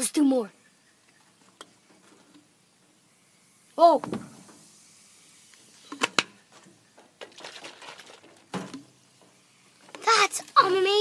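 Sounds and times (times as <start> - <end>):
foam fizzing and splattering: 3.4 - 11.0
dull thump: 4.0 - 4.6.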